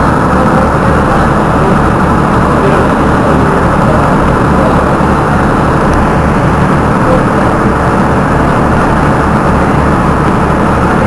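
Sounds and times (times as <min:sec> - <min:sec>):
boat engine rumbling: 0:00.0 - 0:11.0.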